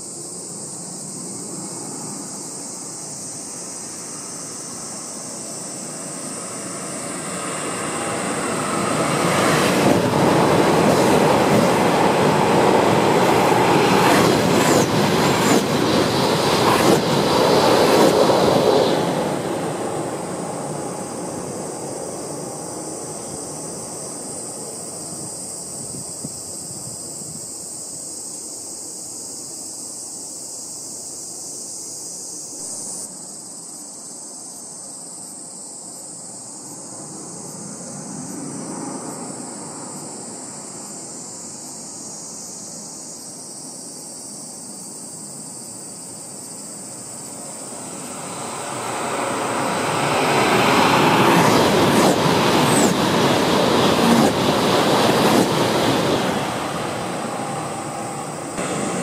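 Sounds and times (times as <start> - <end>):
high-speed train passing: 0.0 - 30.1, 35.5 - 59.0.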